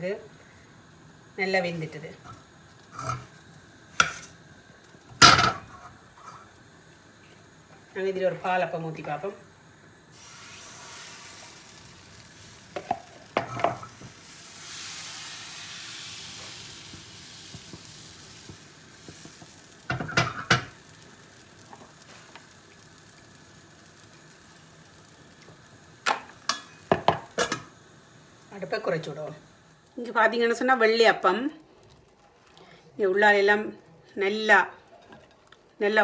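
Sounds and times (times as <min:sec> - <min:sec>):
batter sizzling in a hot pan: 0:00.0 - 0:36.0.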